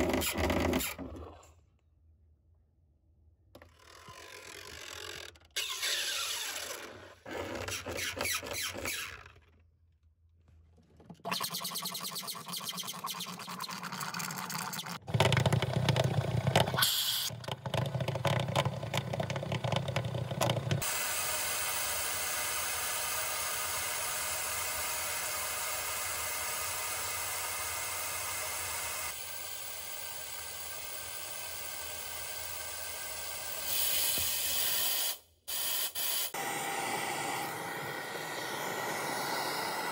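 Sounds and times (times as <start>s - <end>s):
shop vacuum sucking water: 11.2s - 17.4s, 20.4s - 39.9s.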